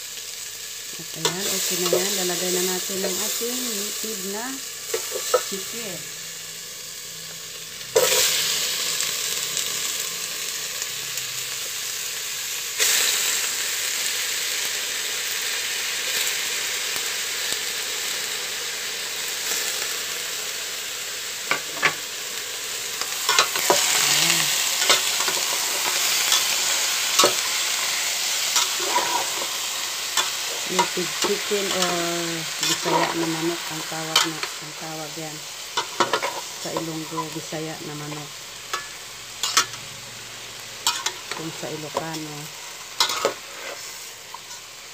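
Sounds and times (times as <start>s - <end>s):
chicken sizzling in a pot: 0.0s - 44.9s.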